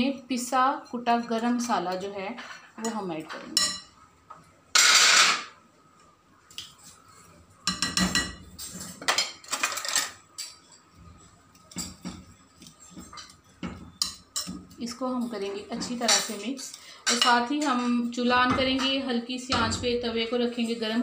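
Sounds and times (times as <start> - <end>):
spoon clinking against ceramic bowl: 3.6 - 3.9, 11.6 - 14.8.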